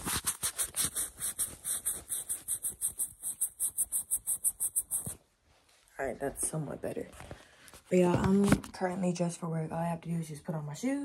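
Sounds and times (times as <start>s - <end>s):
rapid scraping strokes: 0.0s - 5.2s.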